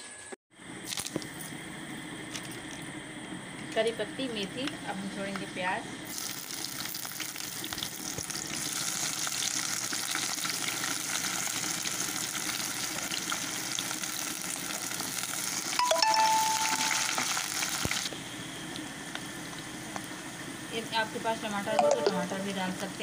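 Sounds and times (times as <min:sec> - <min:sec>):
onions sizzling in hot oil: 0:06.0 - 0:21.6
short ringing tone: 0:15.8 - 0:17.5, 0:21.8 - 0:22.3.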